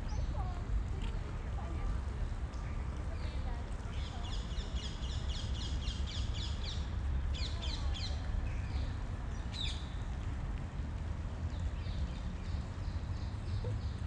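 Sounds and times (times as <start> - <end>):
small birds chirping: 2.9 - 10.0.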